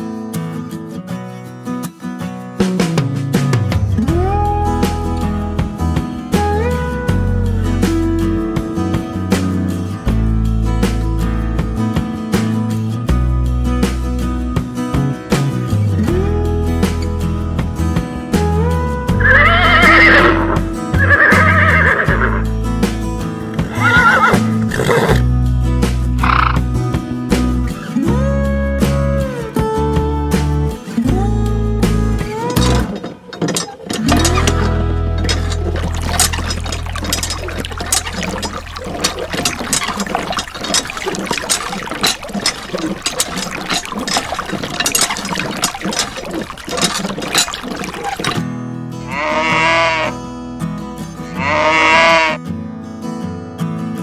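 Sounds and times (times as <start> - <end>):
background music: 2.4 - 52.3
horse whinnying: 19.2 - 22.5, 23.6 - 25.3, 49.1 - 50.2, 51.4 - 52.4
water pouring into dish: 32.6 - 48.4.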